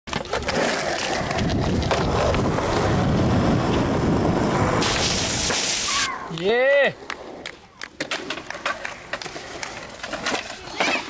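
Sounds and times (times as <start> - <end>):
skateboard clacks: 0.1 - 5.7, 6.3 - 11.0
skateboard wheels rolling on concrete: 0.1 - 11.0
wind on microphone: 1.2 - 5.5.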